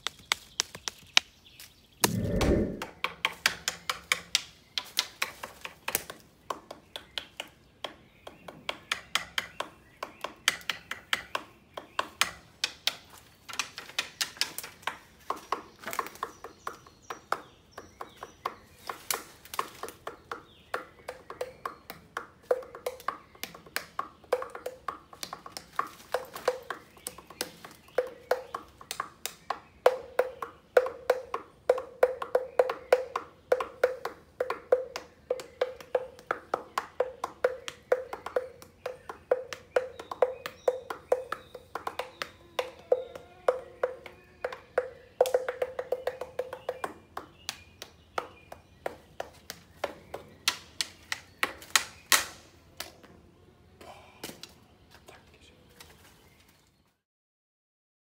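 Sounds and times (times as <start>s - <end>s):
sticks drumming on hollow log: 20.3s - 52.3s.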